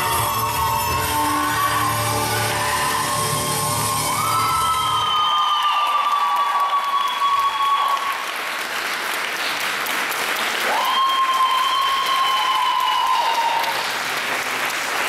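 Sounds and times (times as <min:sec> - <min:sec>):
high-pitched whoops: 0:00.0 - 0:08.3, 0:10.6 - 0:13.8
audience clapping and cheering: 0:00.0 - 0:15.0.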